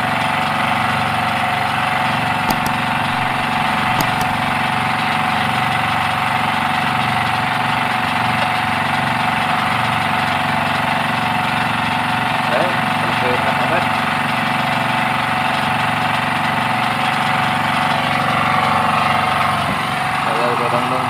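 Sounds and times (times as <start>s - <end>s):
sharp clicks: 2.5s - 4.6s.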